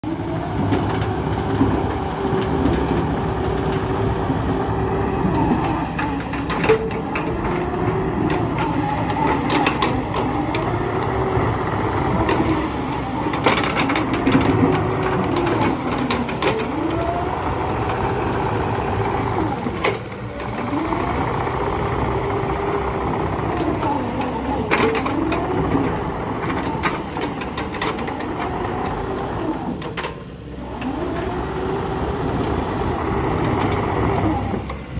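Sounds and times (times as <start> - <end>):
excavator diesel engine under load: 0.0 - 34.9
hydraulic whine: 0.0 - 34.9
knocks and clanks: 12.2 - 17.1.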